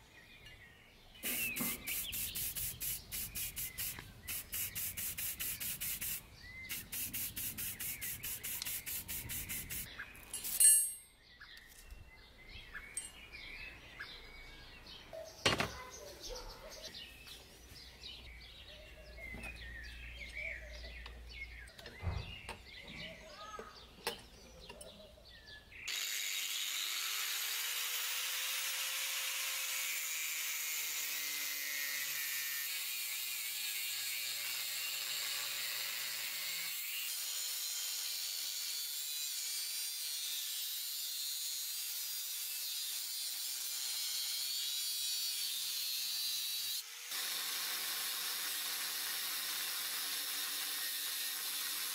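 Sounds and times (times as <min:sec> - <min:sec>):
birds chirping: 0:00.0 - 0:26.0
angle grinder cutting steel: 0:01.2 - 0:10.7, 0:25.9 - 0:51.9.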